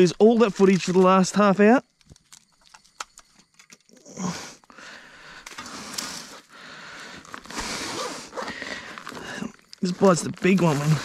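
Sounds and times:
fabric bag rustling and unzipping: 7.2 - 11.0.

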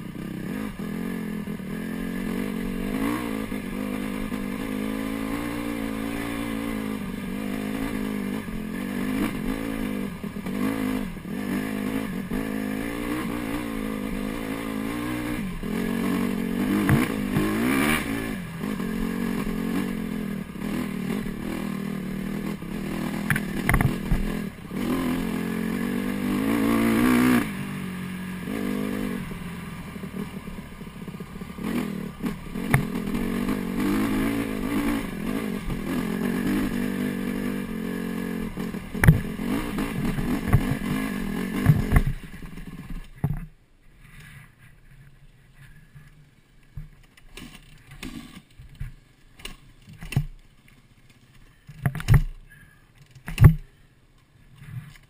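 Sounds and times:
dirt bike engine revving: 0.0 - 43.0.

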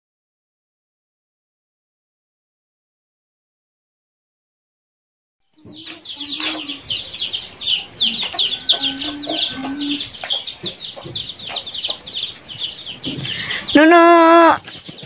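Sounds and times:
chicks chirping: 5.6 - 15.0
hen clucking: 5.6 - 15.0.

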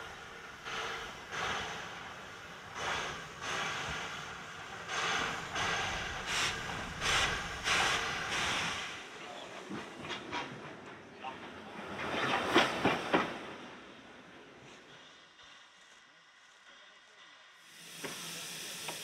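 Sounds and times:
steam engine chuffing: 0.0 - 9.0
steam hissing: 0.0 - 9.2, 14.7 - 19.0.

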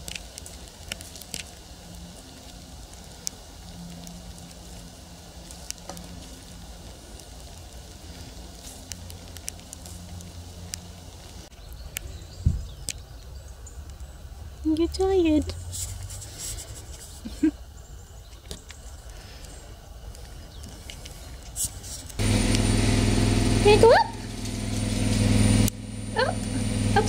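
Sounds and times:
foal chewing grass: 0.0 - 12.0, 14.9 - 17.5
low steady rumble: 22.2 - 27.0.

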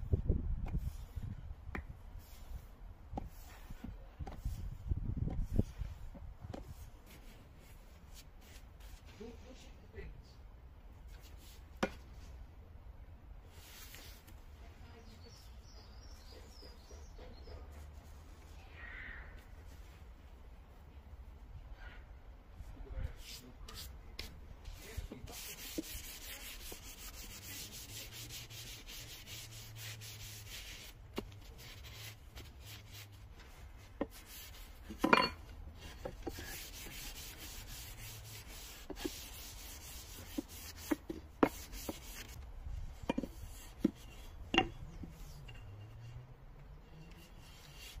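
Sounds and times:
cloth rubbing on wood: 24.7 - 35.1, 35.8 - 42.4.

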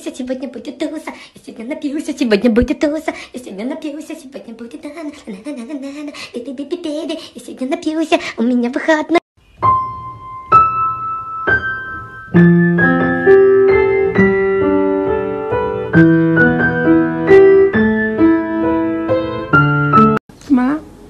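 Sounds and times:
piano melody with chords: 9.5 - 20.2.

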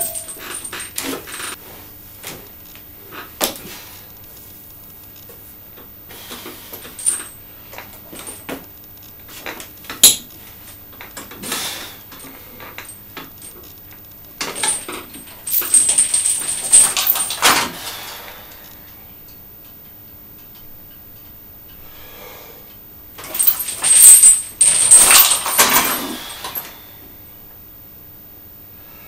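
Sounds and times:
metal clank: 0.0 - 0.8
chains clinking and rattling: 0.0 - 1.6, 6.7 - 7.4, 14.4 - 18.2, 23.2 - 26.7.

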